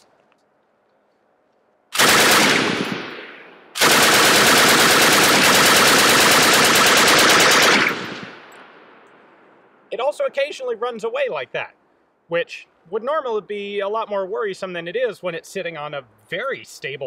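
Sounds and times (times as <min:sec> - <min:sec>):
machine gun bursts echoing: 0:02.0 - 0:08.5.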